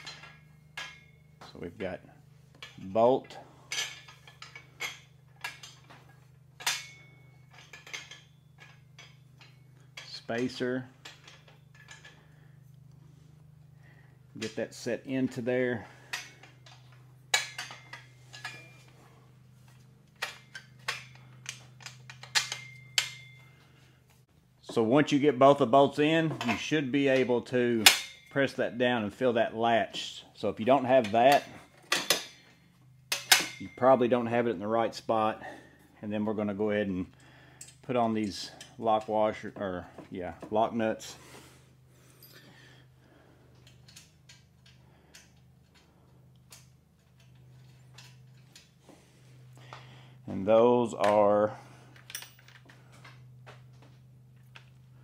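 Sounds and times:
metal parts clicking and clinking: 0.0s - 1.9s, 2.5s - 12.9s, 14.4s - 23.7s, 26.3s - 28.6s, 30.8s - 34.1s, 43.5s - 48.8s, 50.8s - 55.0s
low steady hum: 0.0s - 55.0s
small metal hardware clicking: 20.1s - 23.4s, 51.9s - 53.2s.

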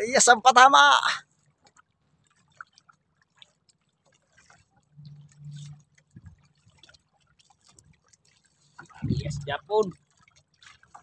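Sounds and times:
water dripping off a net: 1.0s - 9.0s, 9.7s - 11.0s
short low hum: 9.0s - 9.6s.

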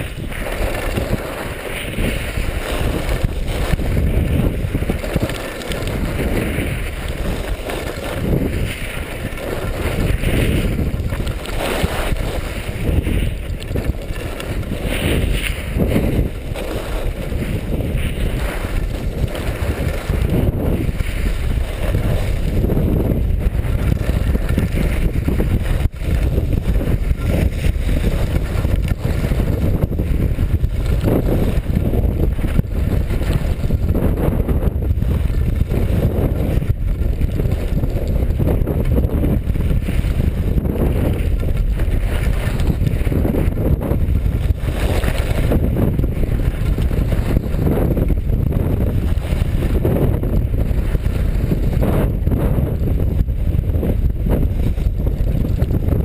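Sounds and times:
skis carving on snow: 0.0s - 56.0s
wind buffeting microphone: 0.0s - 56.0s.

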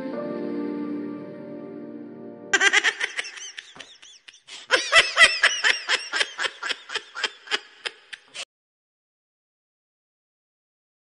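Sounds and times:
high-pitched giggling: 2.6s - 8.4s.

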